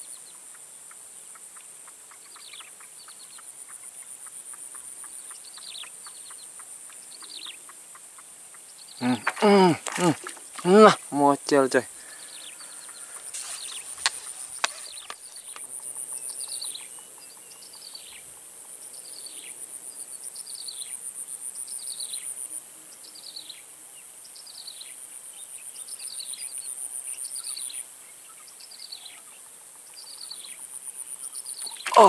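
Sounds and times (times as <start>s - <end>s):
shrill insect trill: 8.6s - 32.0s.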